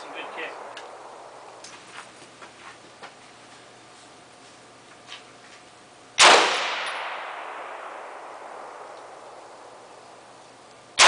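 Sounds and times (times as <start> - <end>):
rifle shot with echo: 0.1 - 1.6, 6.2 - 10.3.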